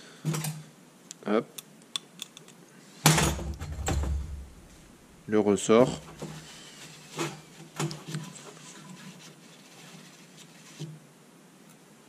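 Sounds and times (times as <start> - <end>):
faint rag rustling: 4.6 - 11.0.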